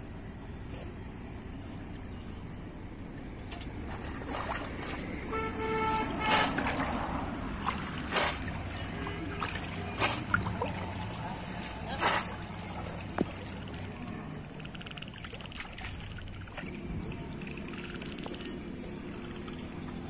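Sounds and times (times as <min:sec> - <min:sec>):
steady background noise: 0:00.0 - 0:20.0
fish trap splashing in water: 0:03.5 - 0:13.8, 0:14.4 - 0:16.8.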